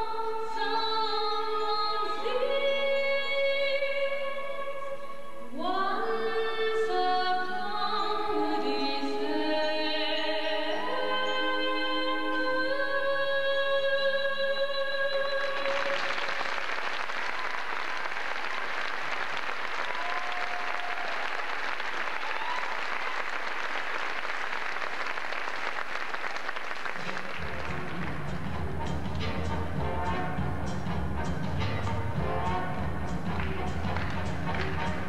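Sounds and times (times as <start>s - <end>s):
audience applause: 15.4s - 28.4s, 33.4s - 35.0s.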